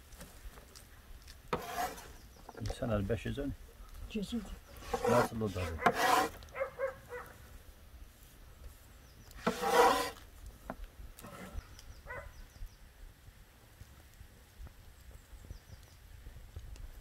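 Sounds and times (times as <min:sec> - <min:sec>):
knife scraping cutting board: 0:01.5 - 0:02.1, 0:04.8 - 0:06.4, 0:09.4 - 0:10.2, 0:11.2 - 0:11.6.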